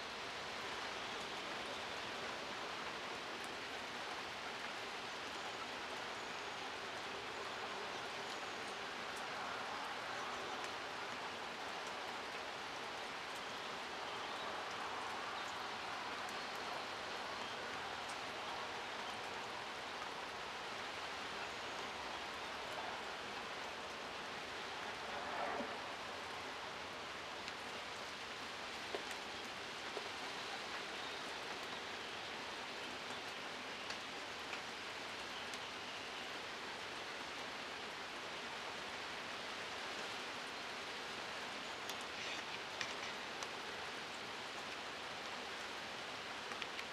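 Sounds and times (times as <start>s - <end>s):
rain falling on vegetation: 0.0s - 46.9s.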